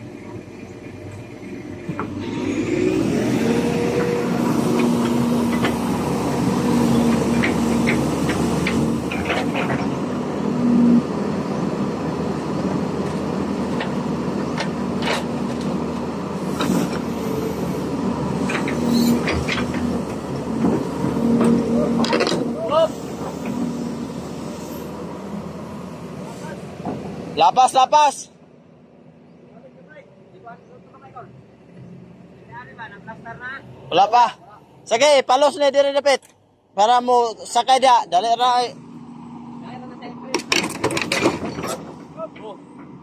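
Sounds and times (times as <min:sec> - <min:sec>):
excavator diesel engine: 0:00.0 - 0:43.0
hydraulic whine: 0:01.7 - 0:27.2
metallic clanks from tracks: 0:04.6 - 0:06.0, 0:06.9 - 0:10.2, 0:13.0 - 0:17.5, 0:18.3 - 0:23.8, 0:40.3 - 0:43.0.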